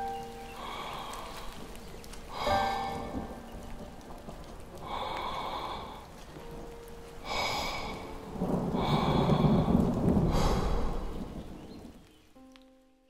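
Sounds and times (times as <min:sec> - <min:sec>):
airy noise swells: 0:00.0 - 0:04.0.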